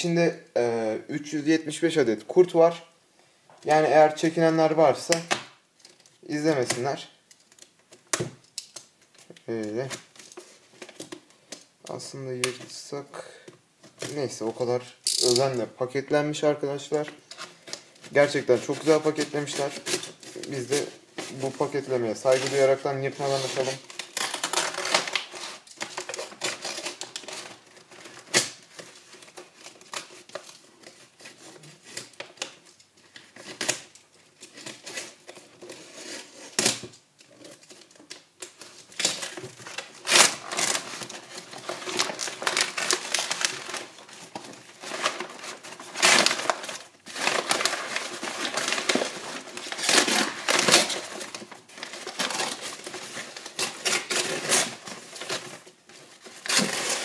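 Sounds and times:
plastic and paper wrapping crinkling: 13.8s - 57.0s.

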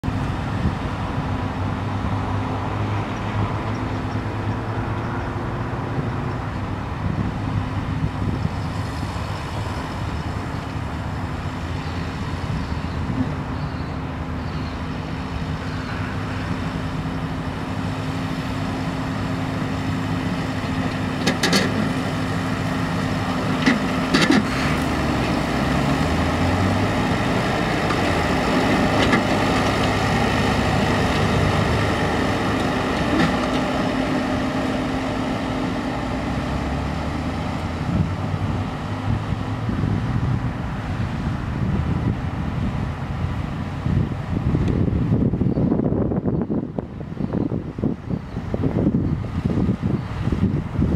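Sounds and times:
tractor engine running: 6.2s - 50.9s
mower cutting grass: 15.0s - 39.4s.

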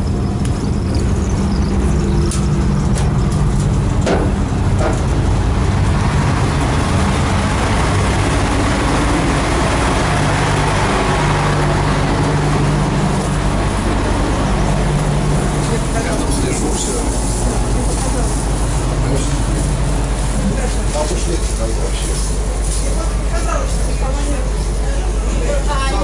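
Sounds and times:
boat engine humming: 0.0s - 26.0s
water wash noise: 4.6s - 24.6s.

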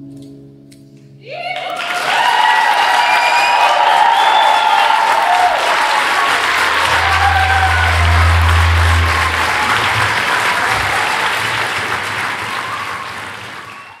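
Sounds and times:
audience applauding: 1.4s - 14.0s
deep low hum: 6.2s - 11.2s.

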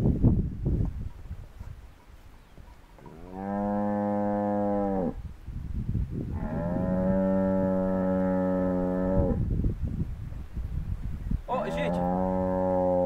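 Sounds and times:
cattle mooing: 3.1s - 5.2s, 6.4s - 9.4s, 11.6s - 13.0s.

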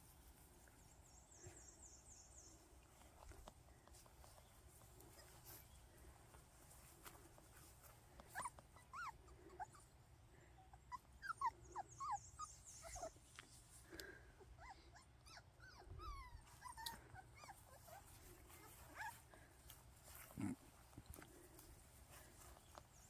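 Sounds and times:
puppies whining and yipping: 3.2s - 6.0s, 8.2s - 13.4s, 14.4s - 20.5s.

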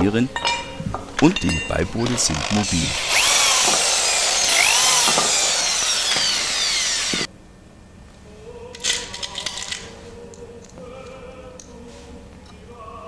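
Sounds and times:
electric drill boring into wood: 2.0s - 7.3s.

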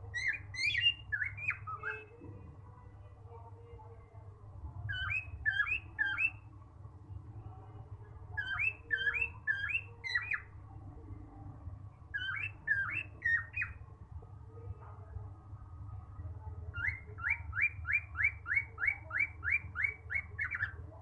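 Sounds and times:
steady low hum: 0.0s - 18.5s
cockatiel whistling: 12.1s - 13.8s, 16.8s - 20.7s.

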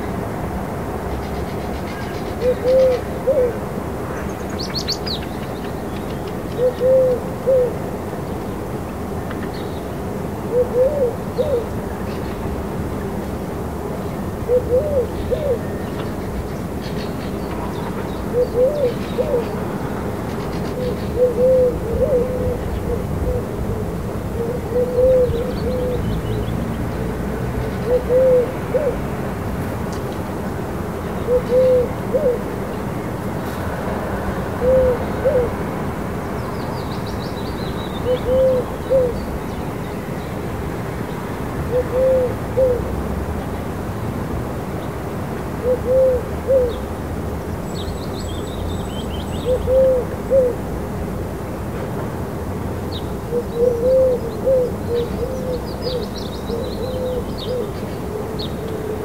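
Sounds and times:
songbirds chirping: 0.0s - 51.4s, 52.2s - 59.0s
pigeon cooing: 2.4s - 3.6s, 6.6s - 7.8s, 10.5s - 11.7s, 14.5s - 15.8s, 18.3s - 19.6s, 20.7s - 23.8s, 24.4s - 26.1s, 27.8s - 29.0s, 31.3s - 32.5s, 34.6s - 35.6s, 38.0s - 39.2s, 41.7s - 42.9s, 45.6s - 46.8s, 49.4s - 50.6s, 53.3s - 59.0s.

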